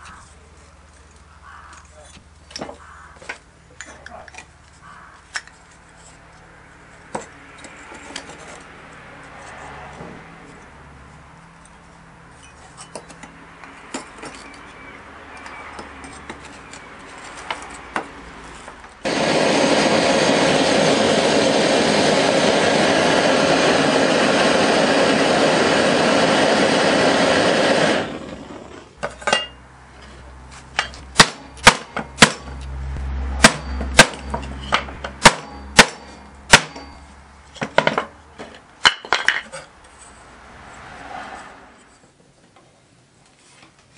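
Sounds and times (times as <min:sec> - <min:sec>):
gas torch hissing: 0:19.0 - 0:29.0
hammer striking wooden block: 0:31.2 - 0:32.4, 0:33.4 - 0:37.0.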